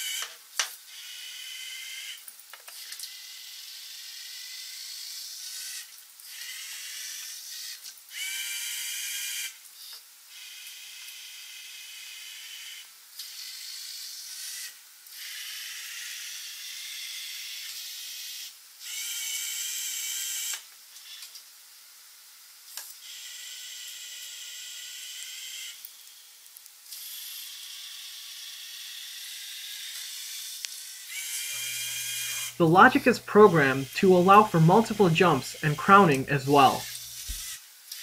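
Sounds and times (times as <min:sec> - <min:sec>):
robot arm motors whirring: 0:36.8 - 0:38.0.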